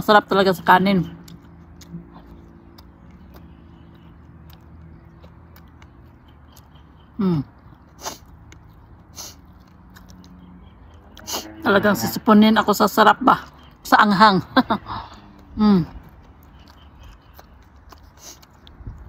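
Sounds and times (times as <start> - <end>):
quiet chewing and mouth sounds: 1.0 - 11.6, 14.9 - 19.0
person sniffing: 8.0 - 8.3, 9.1 - 9.4.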